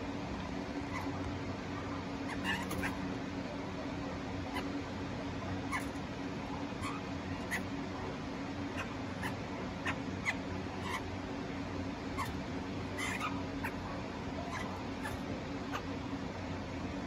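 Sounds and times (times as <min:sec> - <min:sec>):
birds giving squeaky call notes: 0:02.3 - 0:03.0, 0:13.0 - 0:13.8.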